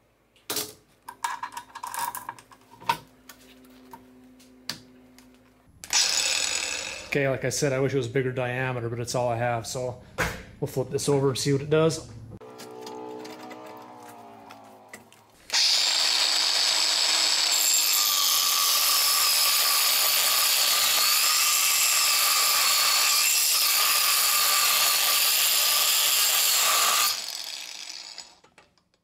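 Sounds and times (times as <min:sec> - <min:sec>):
angle grinder cutting metal: 0:05.8 - 0:07.3, 0:12.4 - 0:28.7
grinder spinning down: 0:05.9 - 0:07.3, 0:12.4 - 0:28.6.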